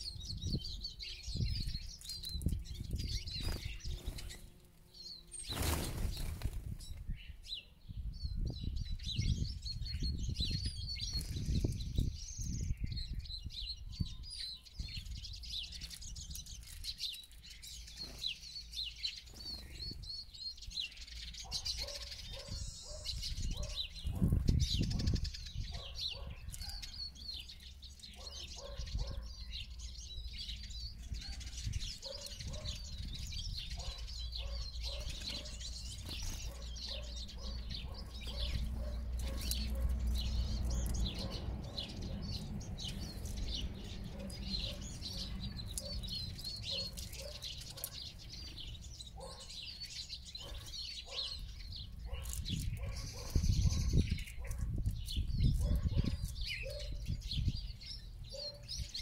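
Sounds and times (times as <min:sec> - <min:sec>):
birds twittering: 0:00.0 - 0:59.0
wings fluttering: 0:02.0 - 0:04.5, 0:05.3 - 0:07.1, 0:35.0 - 0:36.7.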